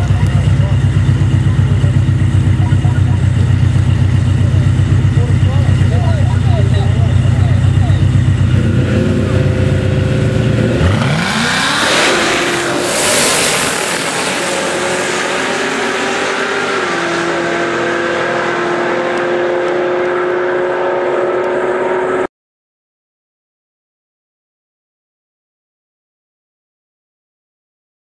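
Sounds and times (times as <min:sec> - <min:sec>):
car engine revving and accelerating: 0:00.0 - 0:22.3.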